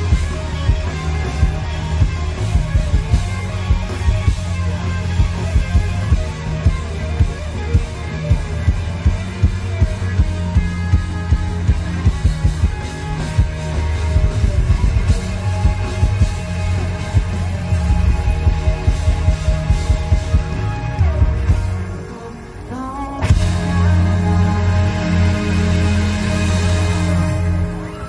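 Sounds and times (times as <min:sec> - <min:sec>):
drum beat: 0:00.0 - 0:21.7
electric guitar: 0:00.0 - 0:28.0
heavy bass: 0:00.0 - 0:28.0.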